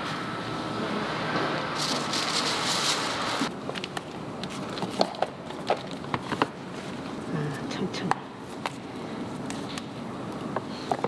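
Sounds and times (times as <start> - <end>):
factory machine noise with hiss: 0.0 - 3.5.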